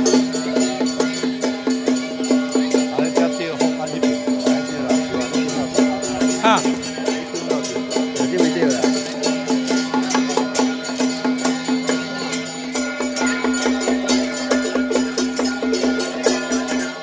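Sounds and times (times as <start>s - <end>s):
quick percussion beats: 0.0s - 17.0s
droning tone: 4.0s - 9.7s.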